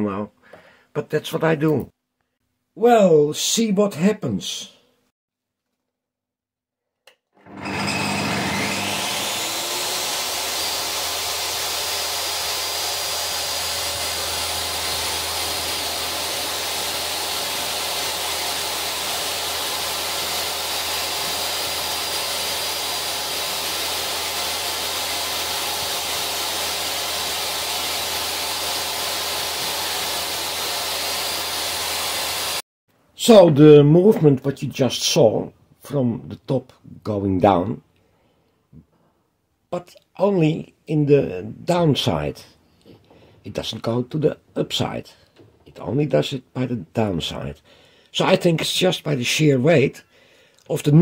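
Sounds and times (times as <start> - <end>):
table saw motor whining: 7.4 - 32.6.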